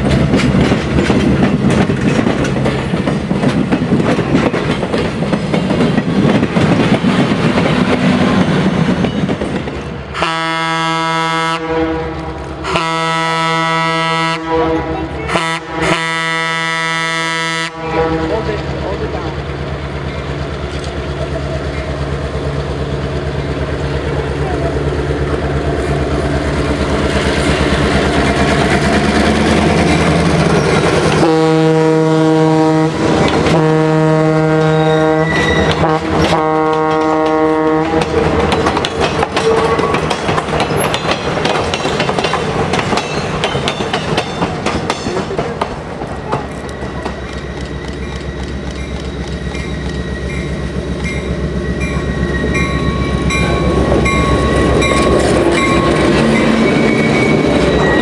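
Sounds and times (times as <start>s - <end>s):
train wheels clacking on rails: 0.0s - 10.4s, 18.0s - 31.5s, 32.8s - 58.0s
diesel locomotive running: 0.0s - 58.0s
train horn blasts: 10.2s - 18.5s, 31.2s - 38.3s
high wheel squeal: 34.8s - 35.8s, 46.4s - 58.0s.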